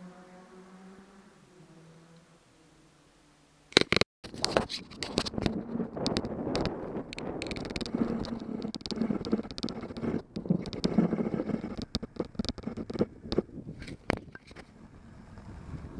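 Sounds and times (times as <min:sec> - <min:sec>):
bike rattling clicks and knocks: 0:03.7 - 0:14.7
bike tyres rumbling on asphalt: 0:03.8 - 0:15.9.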